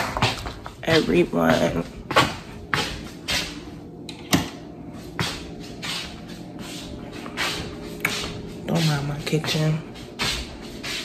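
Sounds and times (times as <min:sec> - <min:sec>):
soft shuffling: 0:04.7 - 0:11.0.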